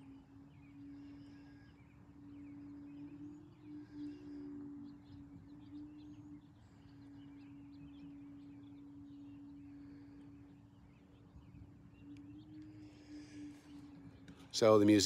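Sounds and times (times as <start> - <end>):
faint bird chirps: 0.0 - 15.0
steady low hum: 0.0 - 15.0.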